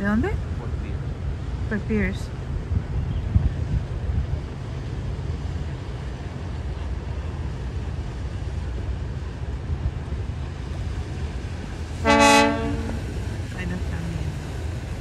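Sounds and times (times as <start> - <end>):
boat engines rumbling: 0.0 - 15.0
wind buffeting microphone: 0.0 - 15.0.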